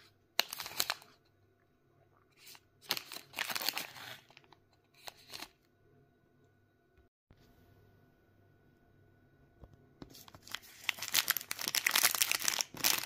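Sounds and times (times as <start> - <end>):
plastic wrapper crinkling: 2.4 - 5.5, 10.1 - 13.0.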